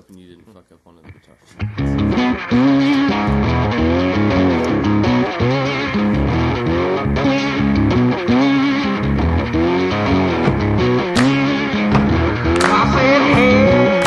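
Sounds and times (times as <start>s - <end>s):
electric guitar riff: 1.0s - 14.0s
bass guitar: 1.5s - 14.0s.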